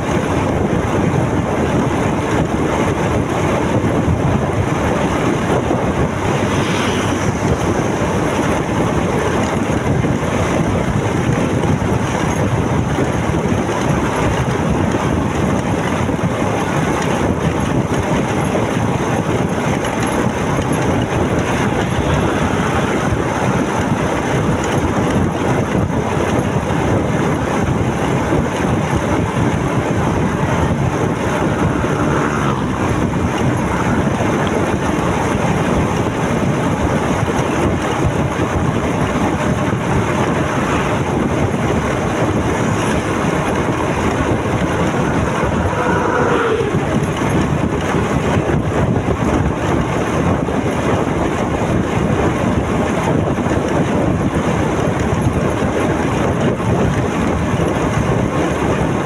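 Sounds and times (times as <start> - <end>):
wind and road noise: 0.0 - 59.0
motorcycle engine running: 3.7 - 49.6.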